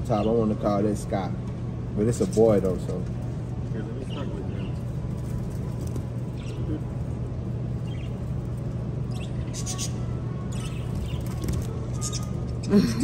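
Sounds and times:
steady low hum: 0.0s - 13.0s
budgerigars chirping: 4.0s - 4.8s, 6.3s - 6.8s, 7.8s - 8.3s, 9.0s - 12.7s.

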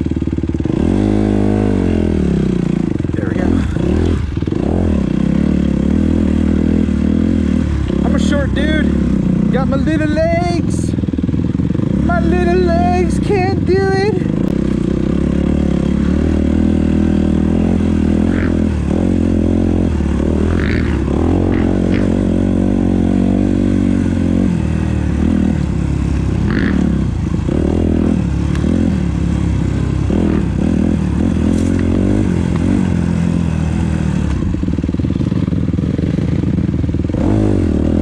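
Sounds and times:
dirt bike engine revving: 0.0s - 38.0s.

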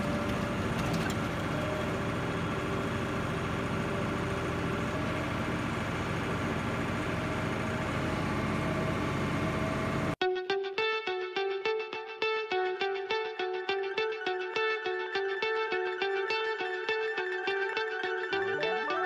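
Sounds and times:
heavy diesel engine running: 0.0s - 10.2s.

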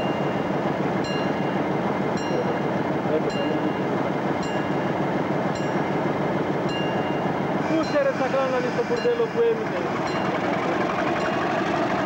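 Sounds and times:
locomotive engine idling: 0.0s - 12.0s.

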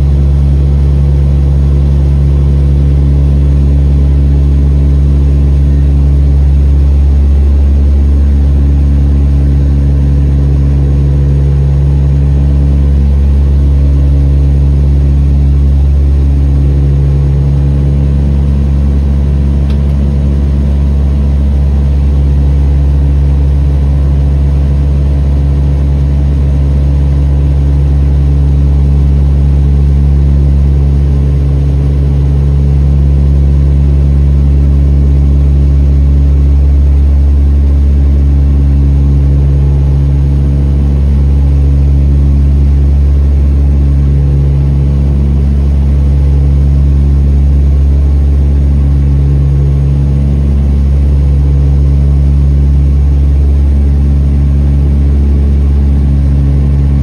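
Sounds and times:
turboprop engine drone in cabin: 0.0s - 57.0s.

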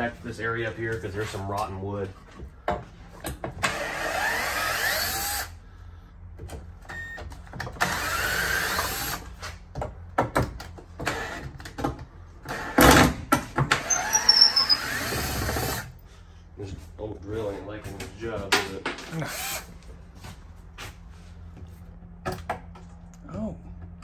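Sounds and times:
power drill whining: 3.6s - 5.6s, 7.7s - 9.3s, 11.0s - 11.5s, 13.7s - 15.9s, 19.2s - 19.7s.

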